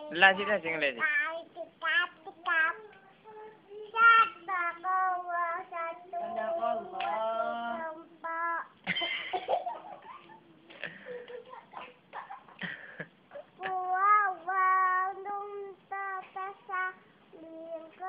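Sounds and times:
toddler chanting sing-song: 0.0 - 8.8, 13.4 - 18.0.

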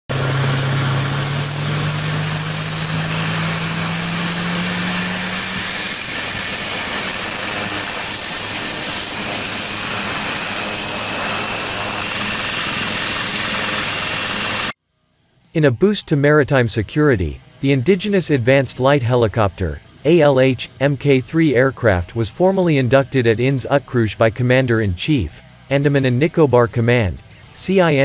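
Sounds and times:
helicopter rotor and engines: 0.0 - 14.8
high turbine whine: 0.0 - 14.8
low hum: 0.0 - 14.8.

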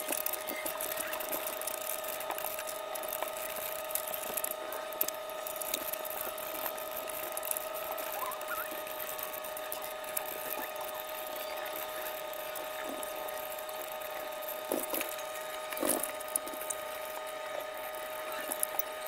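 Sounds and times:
steady whining hum: 0.0 - 19.0
small metal parts clinking: 12.1 - 19.0.

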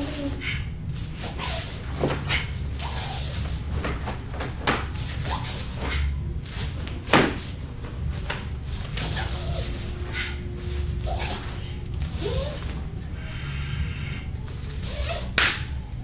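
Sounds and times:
steady low hum: 0.0 - 16.0
sharp hand slaps and snaps: 15.3 - 15.8.

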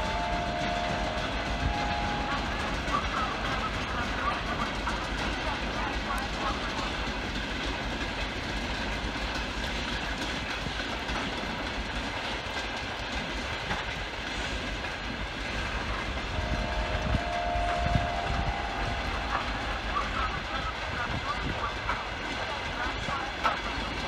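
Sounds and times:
faint held tone: 0.0 - 3.6, 16.2 - 20.4
freight train rolling on rails: 0.0 - 24.0.

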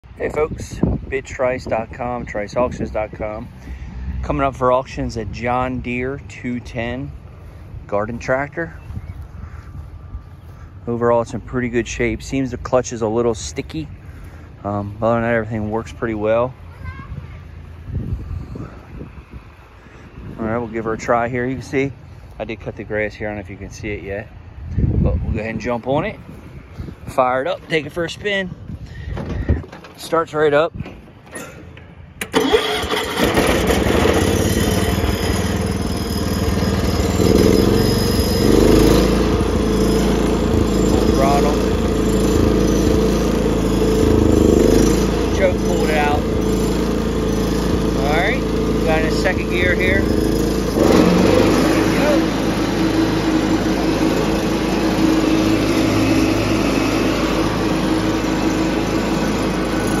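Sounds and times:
tractor engine starting and running: 0.0 - 60.0
garden tractor engine running: 32.2 - 60.0.

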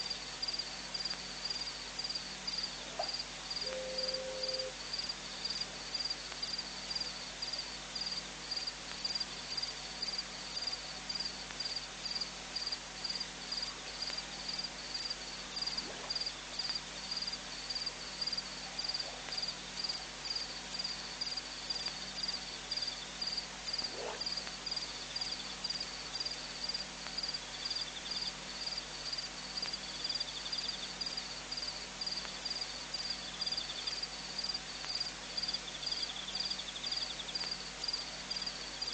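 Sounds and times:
insect chirping: 0.4 - 38.9.

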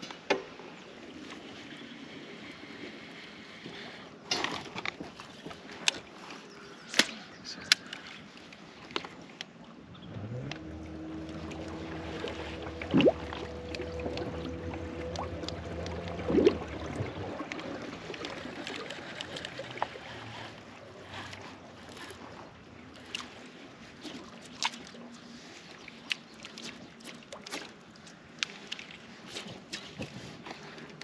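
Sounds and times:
water lapping against hull: 0.7 - 31.0
small ticks and splashes: 4.8 - 20.4, 24.0 - 31.0
low tonal hum: 9.8 - 23.4.

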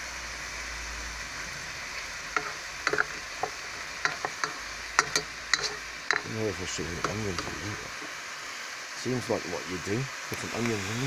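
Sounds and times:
food sizzling in a frying pan: 0.0 - 11.0
utensil scraping a pan: 1.4 - 8.1.

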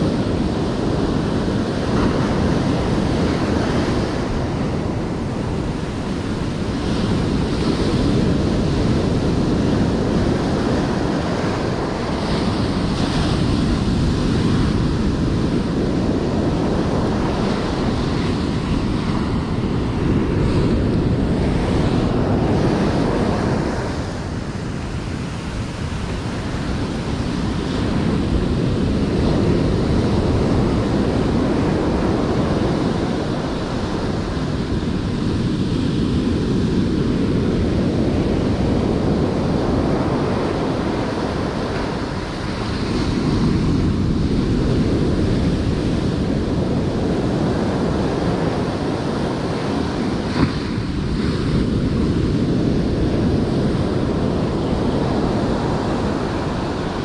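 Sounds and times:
ocean surf breaking on beach: 0.0 - 57.0.

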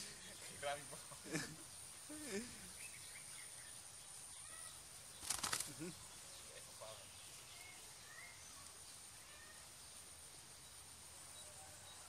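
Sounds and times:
hen flapping wings: 5.2 - 5.9.

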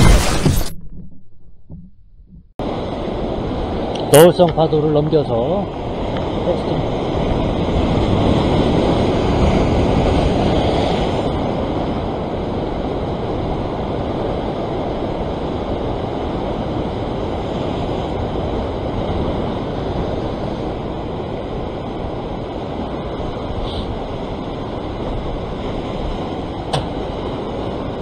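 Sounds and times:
wave crashing on rocks: 2.6 - 28.0.

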